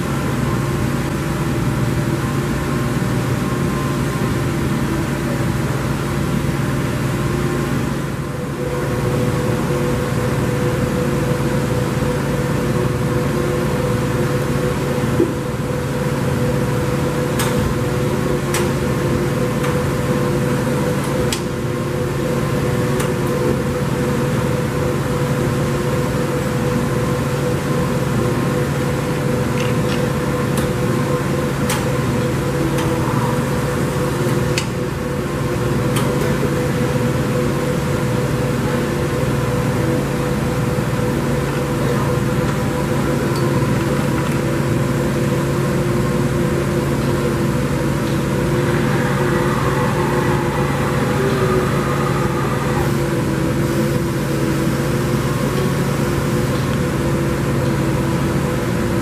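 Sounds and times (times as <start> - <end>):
lathe machine hum: 0.0 - 59.0.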